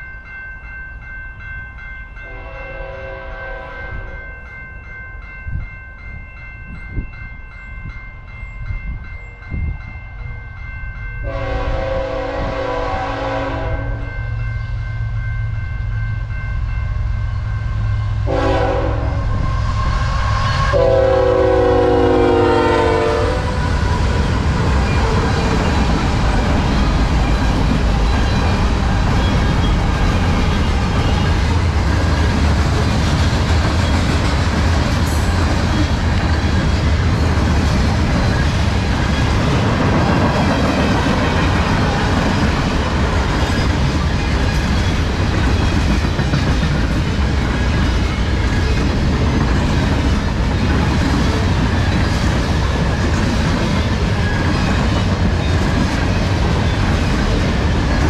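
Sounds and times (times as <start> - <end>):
freight train wheels rumbling: 2.1 - 58.0
locomotive horn blast: 2.3 - 4.2, 11.2 - 14.1, 18.2 - 19.4, 20.2 - 23.6.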